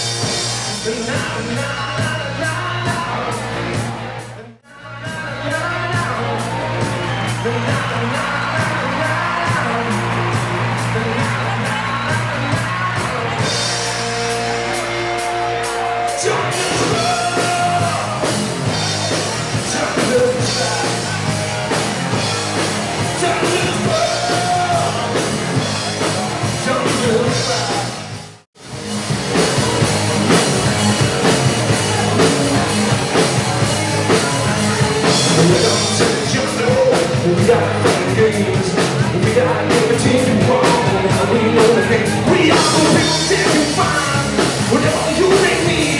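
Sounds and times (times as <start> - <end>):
rock band playing live: 0.0 - 45.9
person singing: 4.4 - 28.0, 29.4 - 45.9.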